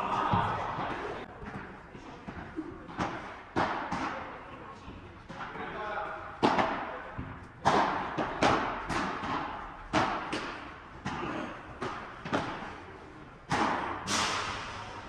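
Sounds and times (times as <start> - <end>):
ball bouncing: 6.4 - 11.2
padel ball hit by rackets: 6.4 - 11.2.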